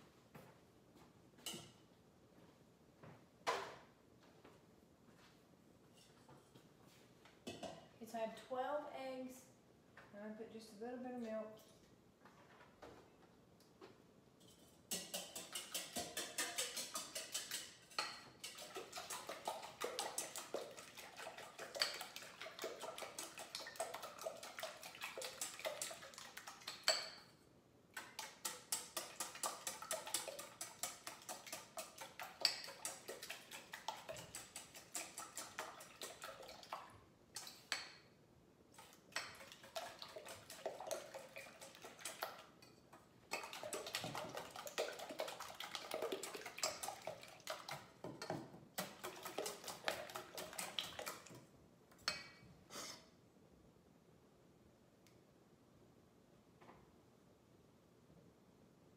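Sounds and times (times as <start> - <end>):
whisk clicking against metal bowl: 14.9 - 27.2, 28.0 - 36.8, 39.1 - 42.7, 43.3 - 51.3.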